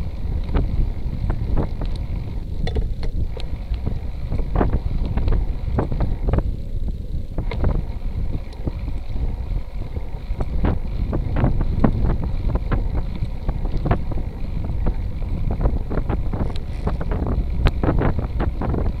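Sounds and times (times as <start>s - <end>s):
tyres rumbling on asphalt: 0.0s - 19.0s
wind buffeting microphone: 0.0s - 19.0s
bike rattling clicks: 0.3s - 6.5s, 16.3s - 18.1s.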